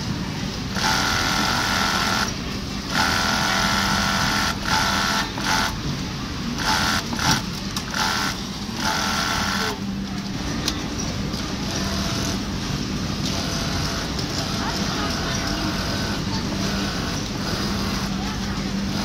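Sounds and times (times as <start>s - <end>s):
sewing machine running: 0.7s - 5.8s, 6.5s - 9.8s, 11.6s - 12.5s, 13.2s - 19.0s.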